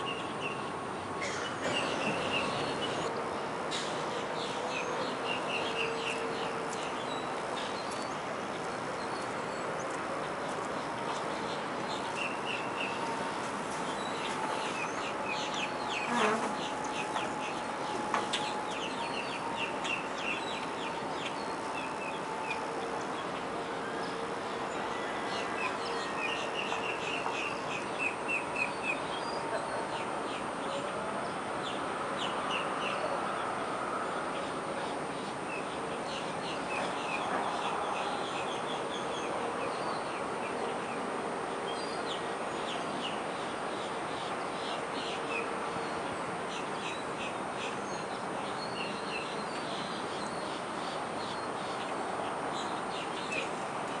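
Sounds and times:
birds chirping: 0.0s - 30.9s
steady background hum: 0.0s - 54.0s.

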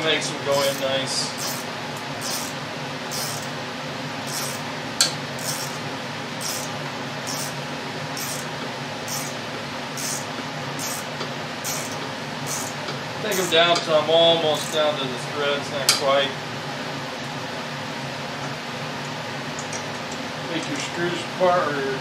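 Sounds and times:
steady hum: 0.0s - 17.2s
wrench metallic clicks: 0.6s - 3.5s, 4.3s - 4.6s, 5.4s - 5.8s, 6.4s - 6.7s, 7.3s - 7.6s, 8.2s - 8.5s, 9.1s - 9.4s, 10.0s - 11.1s, 11.7s - 13.5s, 14.6s - 14.8s.

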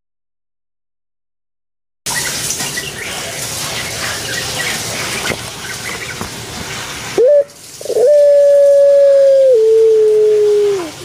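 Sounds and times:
dove cooing: 7.2s - 11.0s.

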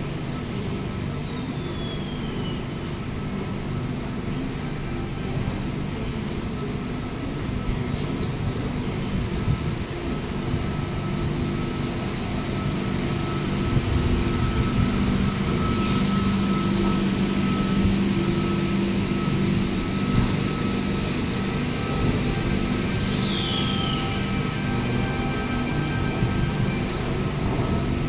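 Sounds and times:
electric train rumbling: 0.0s - 28.0s.

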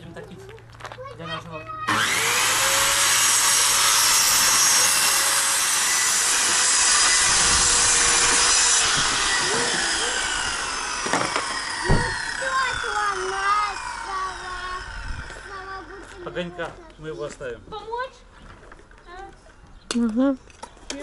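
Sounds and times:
circular saw cutting wood: 1.9s - 16.6s
sharp knock: 11.1s - 12.2s.

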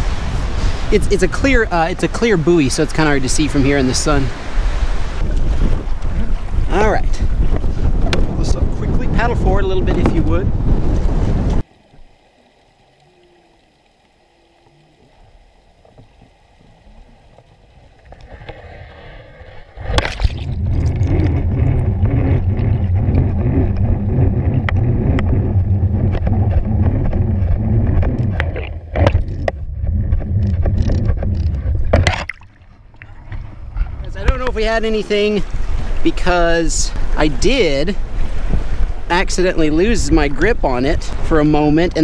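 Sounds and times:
low rush of water: 0.0s - 10.5s, 11.5s - 27.2s, 31.9s - 42.0s.

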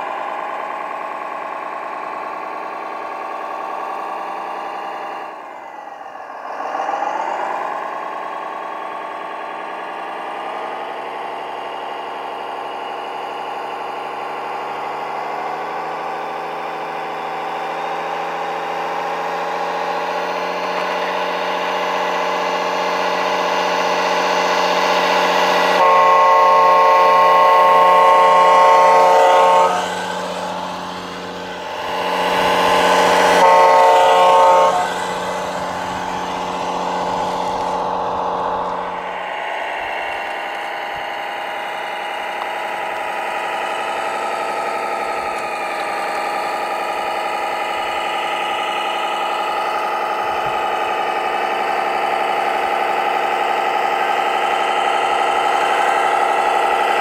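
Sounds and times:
truck engine running: 0.0s - 57.0s
air horn blasts: 23.3s - 39.4s.

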